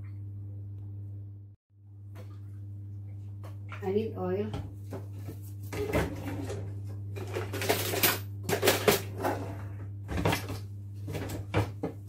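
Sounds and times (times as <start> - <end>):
low hum: 0.0 - 11.0
kitchen utensils clattering: 5.7 - 11.8.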